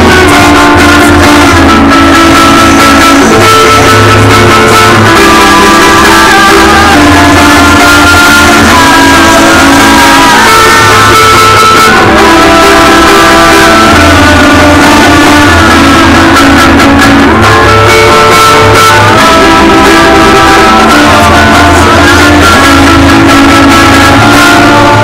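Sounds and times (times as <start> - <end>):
bass guitar: 0.0 - 25.0.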